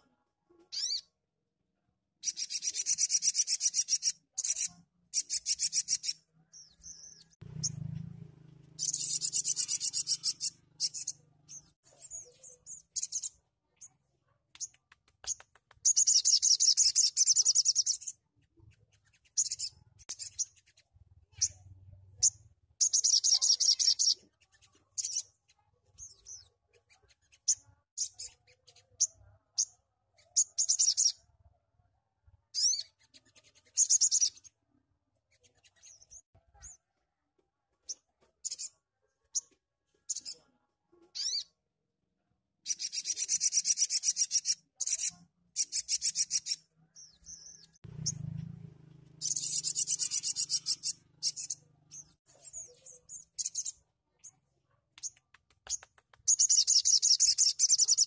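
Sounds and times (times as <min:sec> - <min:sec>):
bird chirping trills: 0:02.2 - 0:14.0, 0:14.6 - 0:31.3, 0:42.7 - 0:54.4, 0:55.8 - 0:58.0.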